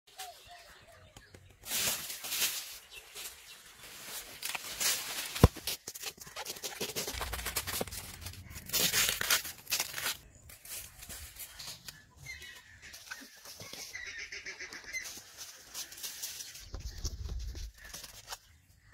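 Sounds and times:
knife tearing plant fibres: 0:07.1 - 0:10.2.

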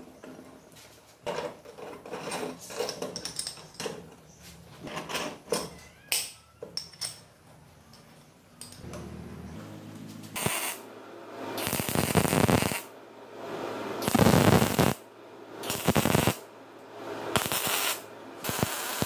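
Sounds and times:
arc welder crackling: 0:10.0 - 0:13.0, 0:14.0 - 0:16.5, 0:17.1 - 0:19.0.

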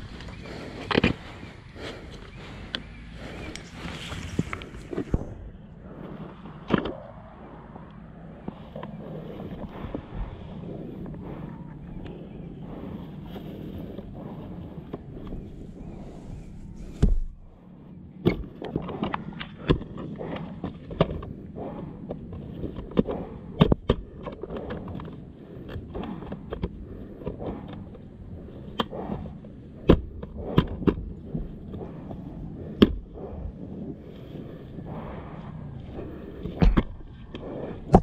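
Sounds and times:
boots shifting on dirt: 0:03.0 - 0:05.4.

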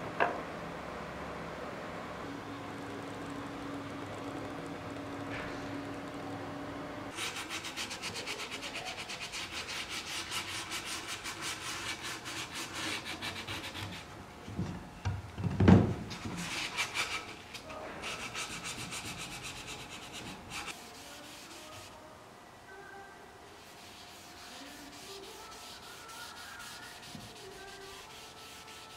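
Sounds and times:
sandpaper rubbing on wood: 0:07.1 - 0:14.1, 0:16.4 - 0:17.4, 0:18.0 - 0:22.0, 0:23.6 - 0:28.9.

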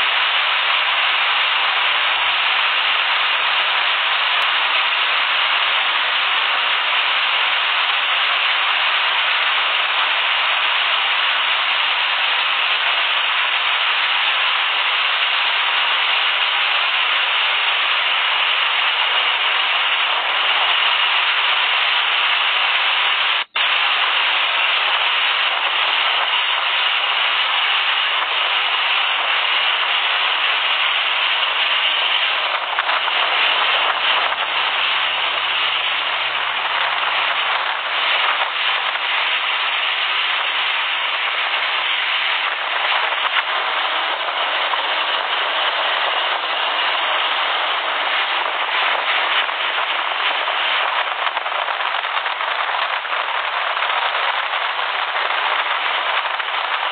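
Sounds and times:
wind and spray rushing: 0:00.0 - 0:56.9
wind buffeting microphone: 0:15.4 - 0:56.9.

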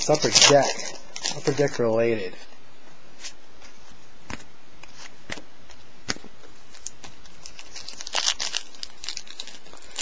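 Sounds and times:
card pack crinkling: 0:00.0 - 0:02.3, 0:06.6 - 0:10.0.

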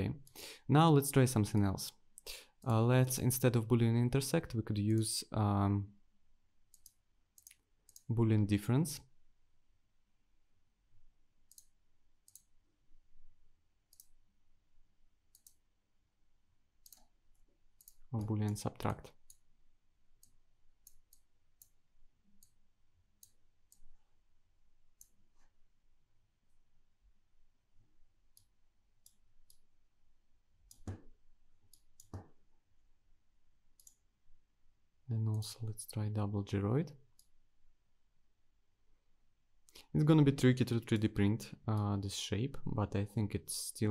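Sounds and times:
computer mouse clicks: 0:06.7 - 0:08.1, 0:11.5 - 0:12.6, 0:13.9 - 0:14.2, 0:15.3 - 0:15.6, 0:16.8 - 0:19.5, 0:20.2 - 0:22.6, 0:25.0 - 0:25.5, 0:28.3 - 0:29.7, 0:30.7 - 0:32.3, 0:33.8 - 0:34.1.

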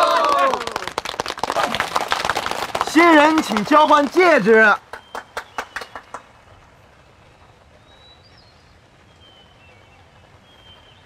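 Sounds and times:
hand claps: 0:00.0 - 0:06.3.

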